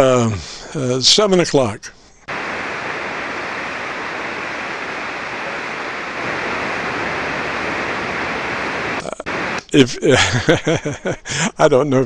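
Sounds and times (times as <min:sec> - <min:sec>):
radio static hiss: 0:02.3 - 0:11.2.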